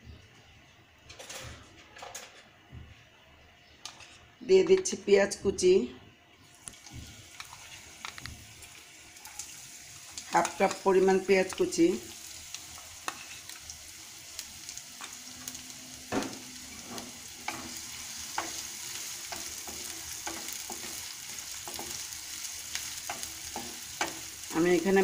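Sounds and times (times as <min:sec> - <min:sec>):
spatula scraping and tapping pan: 0:03.8 - 0:04.9, 0:12.8 - 0:13.6, 0:16.1 - 0:22.1, 0:22.7 - 0:24.3
onions sizzling in a pan: 0:06.4 - 0:25.0.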